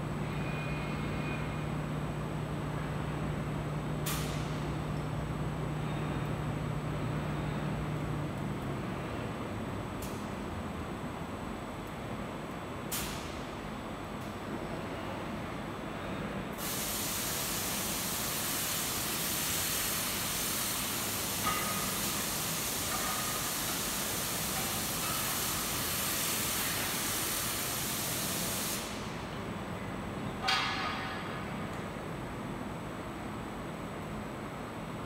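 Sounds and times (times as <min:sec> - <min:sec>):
low machine hum: 0:00.0 - 0:16.6
steady hiss: 0:16.6 - 0:29.2.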